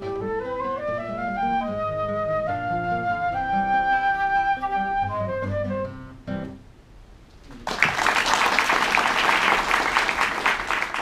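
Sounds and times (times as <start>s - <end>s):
flute melody: 0.0s - 6.5s
acoustic guitar accompaniment: 0.0s - 6.7s.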